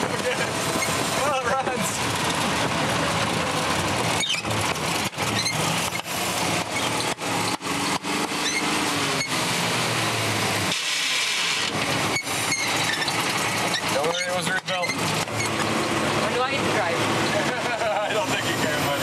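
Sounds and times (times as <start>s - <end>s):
car engine misfiring while driving: 0.0s - 19.0s
short high squeaks: 4.2s - 4.6s, 5.3s - 6.0s, 6.7s - 9.4s, 12.1s - 15.6s.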